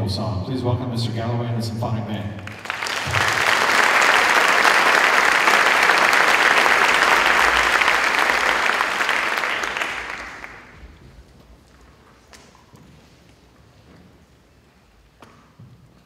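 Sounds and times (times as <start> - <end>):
audience applauding: 2.4 - 11.0.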